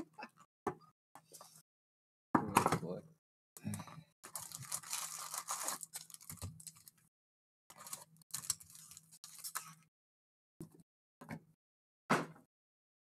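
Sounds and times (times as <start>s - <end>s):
cardboard tearing and rustling: 4.3s - 6.8s.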